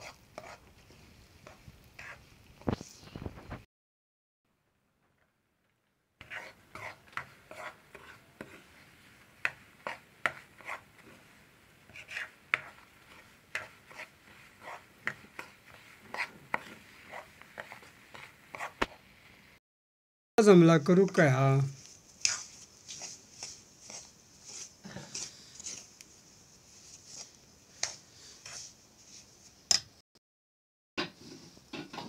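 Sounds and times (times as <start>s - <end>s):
metal spoon scraping a pan: 1.4s - 2.2s, 6.2s - 11.3s, 11.9s - 18.8s, 22.2s - 25.9s.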